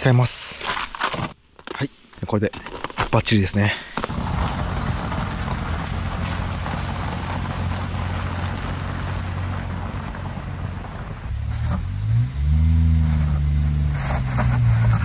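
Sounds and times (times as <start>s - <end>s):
chained tyres on snow: 0.0s - 15.0s
small engine droning: 4.1s - 15.0s.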